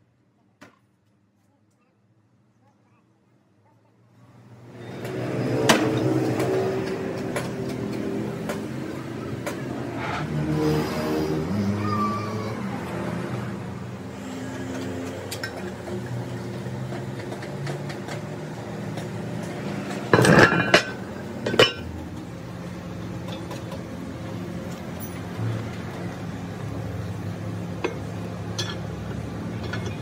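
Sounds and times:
metal clanking: 19.9s - 21.9s.

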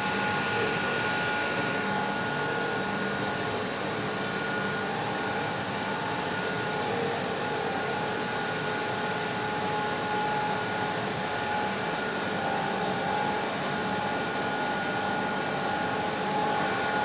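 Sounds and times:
machine hum and hiss: 0.0s - 17.0s.

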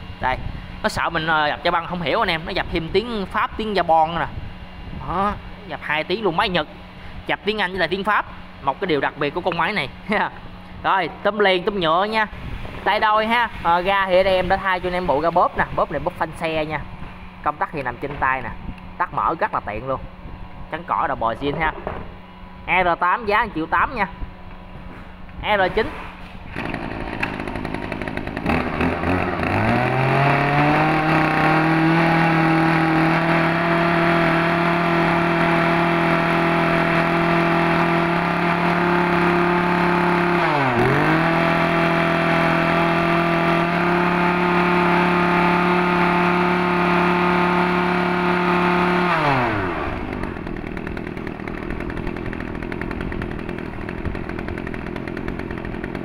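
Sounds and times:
brush cutter engine running: 25.7s - 56.0s.

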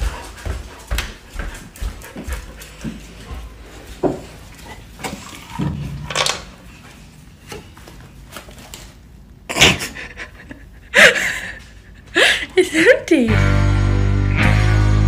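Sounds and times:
dog panting: 0.0s - 5.6s.

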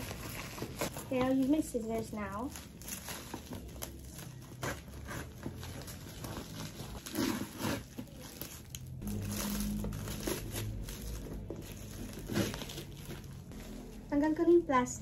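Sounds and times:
plastic pouch crinkling: 0.0s - 4.6s
scissors cutting plastic: 0.0s - 13.9s.

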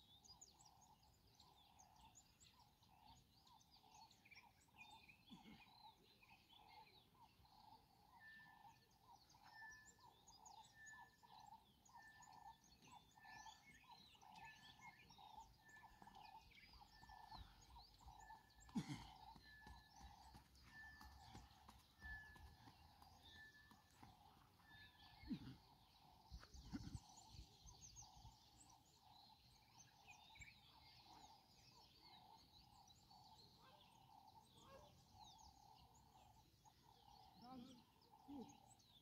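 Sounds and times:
birds chirping: 0.0s - 39.0s.

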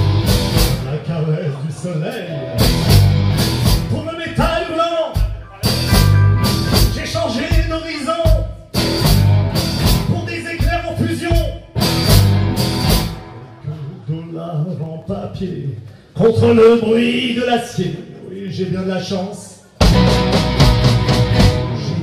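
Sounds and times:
blues-rock band playing: 0.0s - 0.9s, 2.3s - 4.0s, 5.1s - 13.6s, 19.8s - 22.0s
harmonica wailing: 5.3s - 7.0s.

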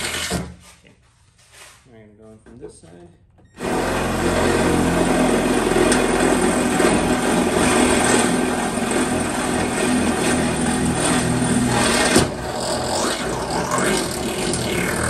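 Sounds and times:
cordless drill boring metal: 3.6s - 15.0s.

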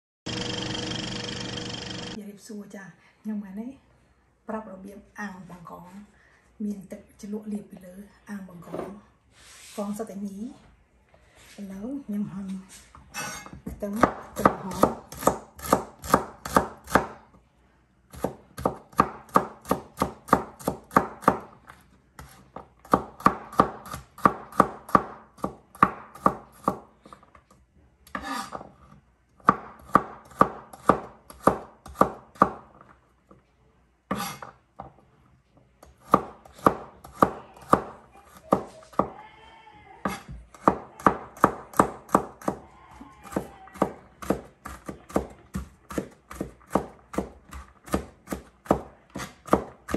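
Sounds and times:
knife chopping on cutting board: 29.4s - 32.6s, 36.0s - 39.1s, 43.3s - 49.9s.

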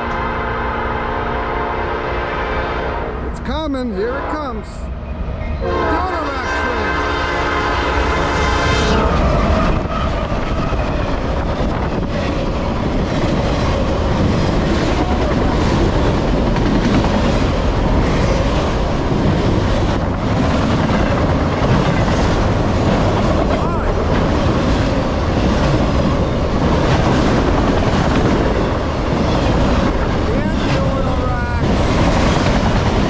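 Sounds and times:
locomotive horn chord: 0.0s - 3.3s, 4.1s - 4.8s, 5.6s - 10.0s
train rumble and wheel clatter: 0.0s - 33.0s.

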